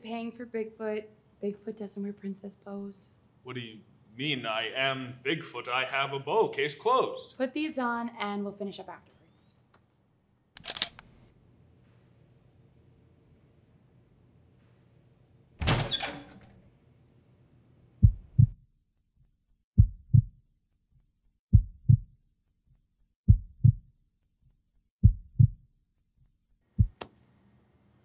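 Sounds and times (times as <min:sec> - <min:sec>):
heartbeat thumps: 0:18.0 - 0:18.6, 0:19.8 - 0:20.4, 0:21.5 - 0:22.2, 0:23.3 - 0:23.9, 0:25.0 - 0:25.7, 0:26.8 - 0:27.1.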